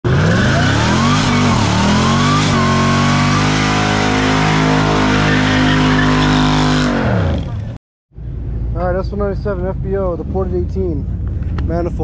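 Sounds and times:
car engine revving: 0.1 - 7.8.

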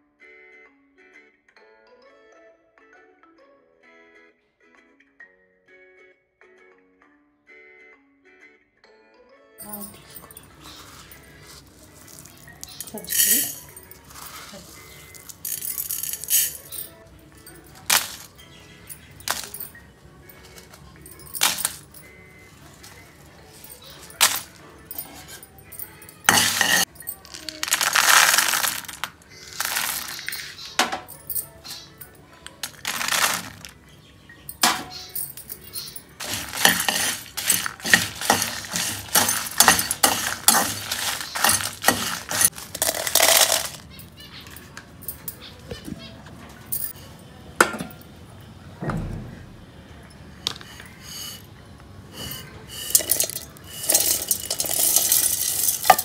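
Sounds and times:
background music: 0.0 - 56.0
roasted mix rattling into jar: 10.2 - 16.9, 17.6 - 18.4, 26.3 - 30.7, 32.5 - 33.8, 36.2 - 44.0, 52.2 - 56.0
metal spatula scraping in a wok: 36.2 - 42.6, 50.6 - 51.4.

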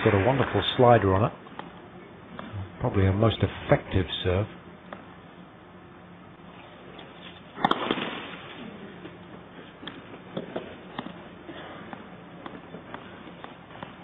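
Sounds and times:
crowd applause: 0.0 - 1.2
thuds and clicks on court: 7.6 - 8.2
tennis racket hitting ball: 7.6 - 8.6, 9.7 - 11.3.

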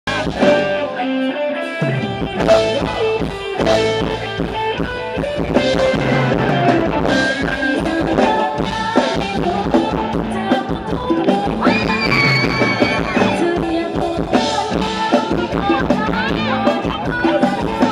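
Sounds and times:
live band dance music: 0.1 - 17.9
steady drum beat: 1.8 - 17.9.

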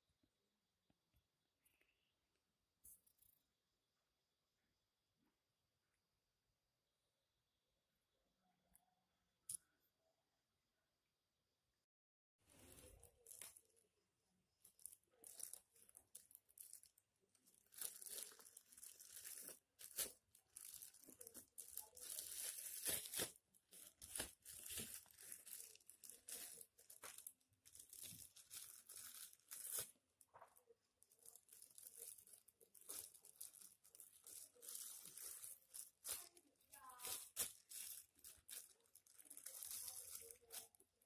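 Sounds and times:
plastic wrappers crinkling: 12.5 - 13.9, 14.5 - 41.0.

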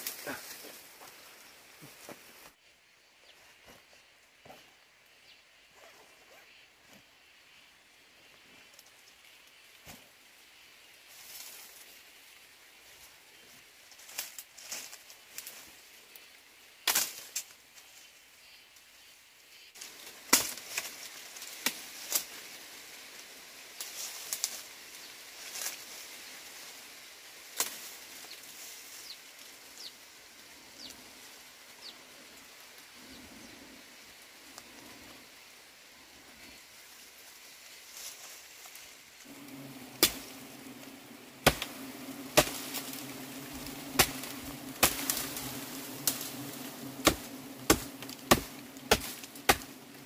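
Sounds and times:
dry stems snapping and rustling: 14.0 - 15.6, 16.8 - 17.6, 19.8 - 22.6, 23.8 - 24.7, 27.4 - 29.0, 37.9 - 50.0.

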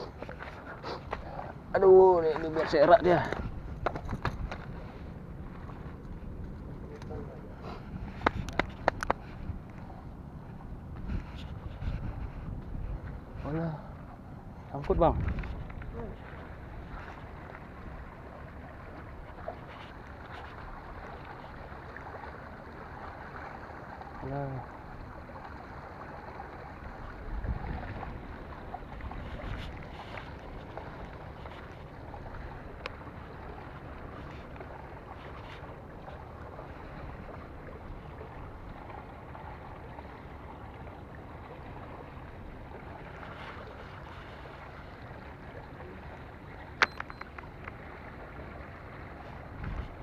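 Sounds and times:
wind on microphone: 3.0 - 21.7, 26.8 - 34.3, 49.1 - 50.0.

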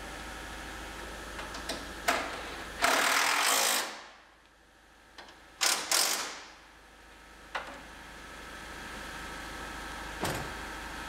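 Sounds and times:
cordless power tool driving bolts: 2.8 - 4.0, 5.6 - 6.4.

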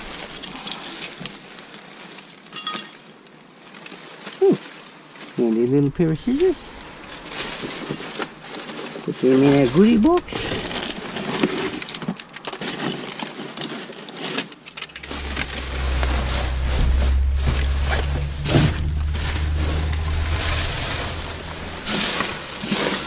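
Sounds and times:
plastic and cardboard rustling: 3.5 - 6.6, 7.2 - 15.0
low droning engine hum: 14.7 - 23.0.

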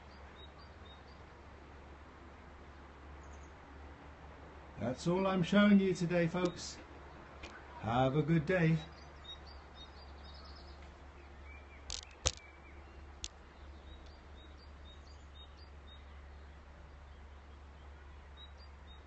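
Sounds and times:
faint bird chirps: 8.8 - 19.0
sharp clicks: 11.8 - 12.5.

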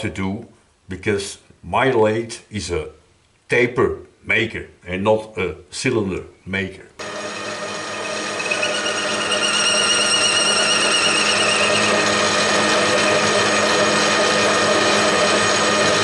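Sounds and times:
lathe tool cutting steel: 7.0 - 16.0
metal lathe humming: 7.0 - 16.0
high-pitched ringing: 7.2 - 13.4.

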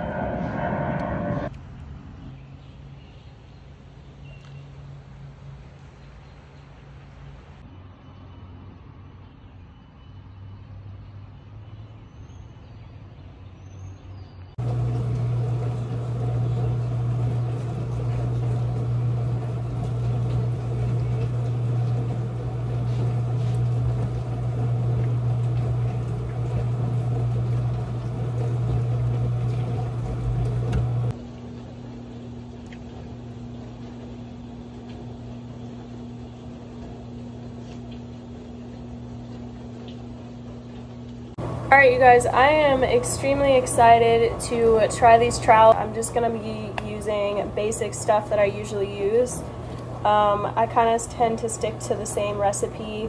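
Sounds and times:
steady low hum: 0.0 - 7.6, 14.6 - 53.0
tap water running into sink: 14.6 - 31.1.

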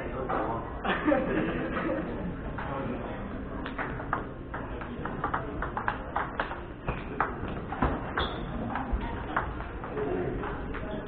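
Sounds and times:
table tennis ball clicking: 3.6 - 10.0.

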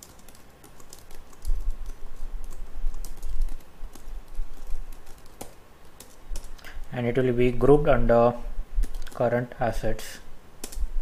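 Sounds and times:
computer keyboard typing: 0.0 - 6.7, 8.8 - 9.2, 10.6 - 10.8.

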